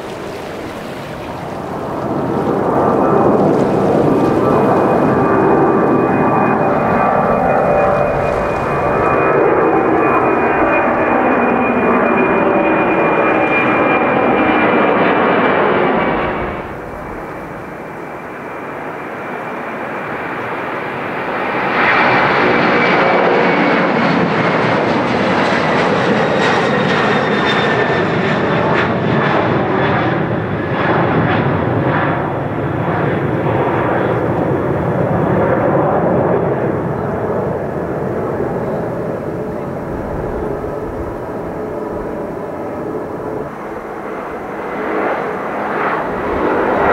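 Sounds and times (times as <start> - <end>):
crackling jet engine: 0.0 - 46.9
jet engines roaring with whine: 0.0 - 46.9.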